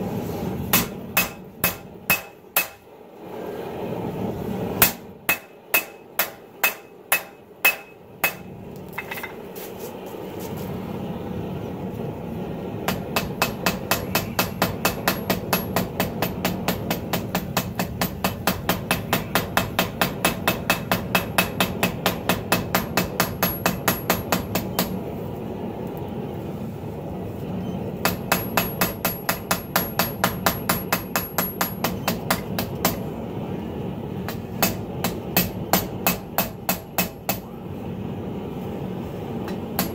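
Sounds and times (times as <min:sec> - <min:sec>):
hammer striking steel on anvil: 0:00.7 - 0:02.9, 0:04.8 - 0:09.4, 0:12.9 - 0:25.0, 0:28.0 - 0:33.1, 0:34.3 - 0:37.5, 0:39.5 - 0:39.9.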